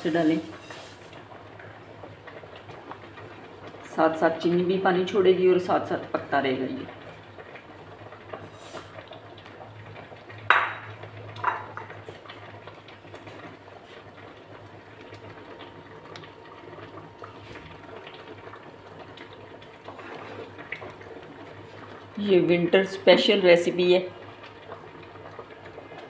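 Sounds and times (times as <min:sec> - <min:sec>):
spatula stirring thick mixture: 0:19.9 - 0:21.0.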